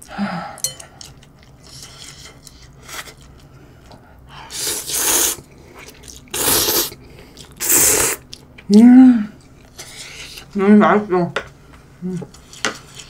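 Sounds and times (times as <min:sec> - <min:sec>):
person slurping noodles: 0:04.5 - 0:05.5, 0:06.2 - 0:08.2.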